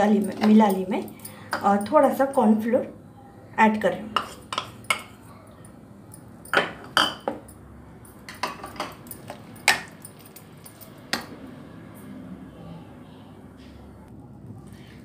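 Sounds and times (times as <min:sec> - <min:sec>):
steel spoon clinking against bowl: 0:00.0 - 0:02.6, 0:04.1 - 0:11.3.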